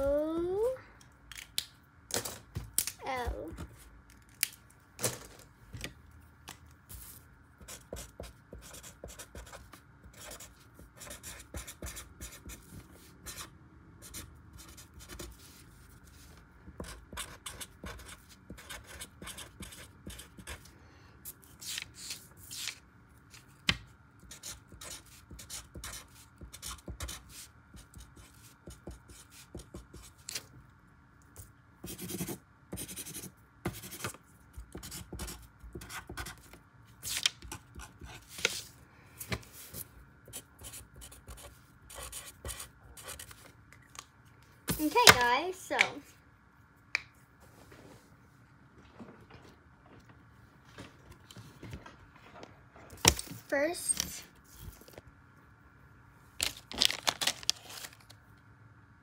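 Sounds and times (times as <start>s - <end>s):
marker scratching on paper: 7.6s - 16.2s, 16.8s - 20.6s, 24.3s - 30.2s, 31.8s - 38.6s, 40.3s - 43.3s.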